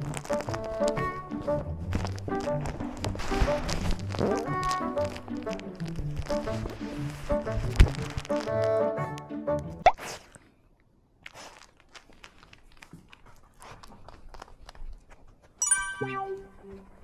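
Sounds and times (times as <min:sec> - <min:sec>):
dog paws tapping on wooden floor: 0:00.0 - 0:08.8
background music: 0:00.0 - 0:09.8, 0:15.6 - 0:17.0.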